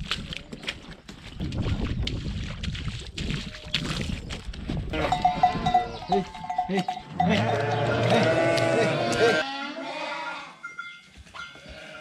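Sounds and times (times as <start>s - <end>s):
sheep bleating: 4.9s - 10.6s, 11.6s - 12.0s.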